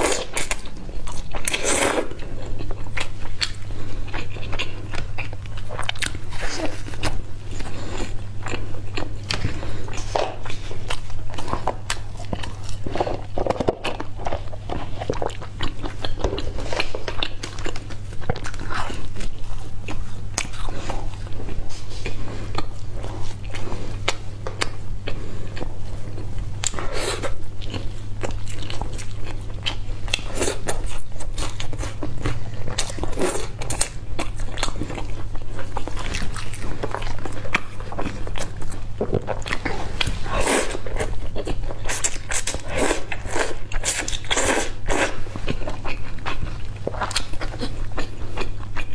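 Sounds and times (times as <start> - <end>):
chewing and crunchy bites: 0.0 - 48.9
low electrical hum: 0.0 - 48.9.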